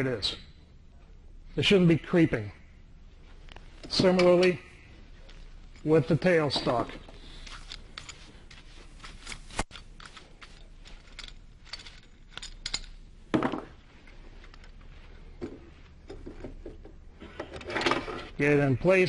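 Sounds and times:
metal clicks and clatter: 5.3 - 8.3, 9.2 - 13.1.

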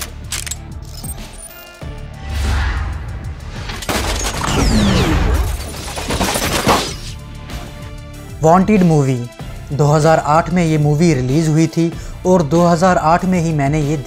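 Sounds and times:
dramatic music: 0.0 - 12.2
bullet whoosh: 2.2 - 5.6
sharp impact: 2.2 - 5.8.

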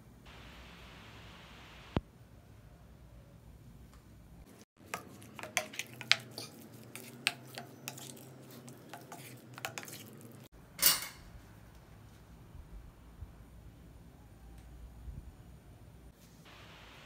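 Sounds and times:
spoon scraping bowl: 4.8 - 11.2.

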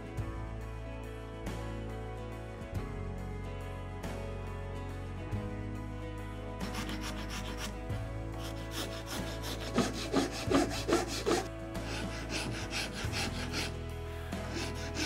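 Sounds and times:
soft background music: 0.0 - 15.0
hand file rasping on wood: 6.6 - 15.0.

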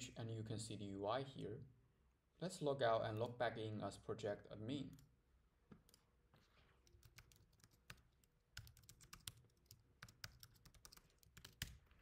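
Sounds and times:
typing on computer keyboard: 6.8 - 11.9.

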